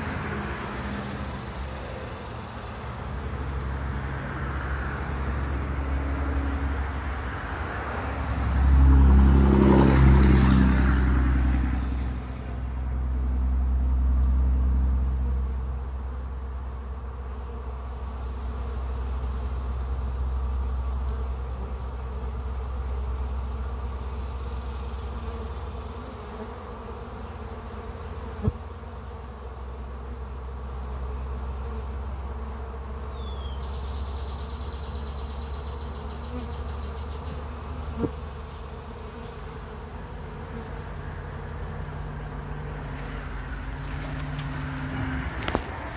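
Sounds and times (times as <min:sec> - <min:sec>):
honey bees buzzing: 0:00.0 - 0:45.9.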